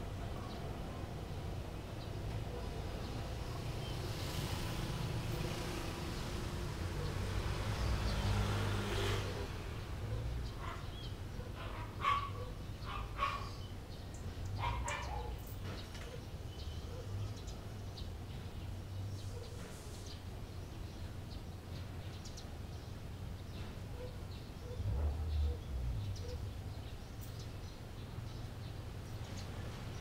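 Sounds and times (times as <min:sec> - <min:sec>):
dog barking: 0:10.1 - 0:13.6, 0:14.6 - 0:15.4, 0:16.0 - 0:17.3, 0:23.9 - 0:26.5.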